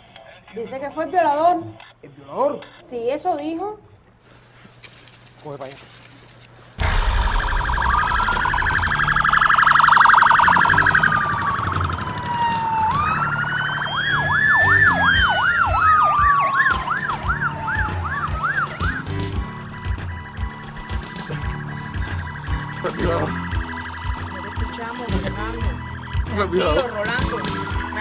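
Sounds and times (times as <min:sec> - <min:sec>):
ambulance siren wailing: 0:06.8 - 0:28.0
fast siren yelp: 0:06.8 - 0:28.0.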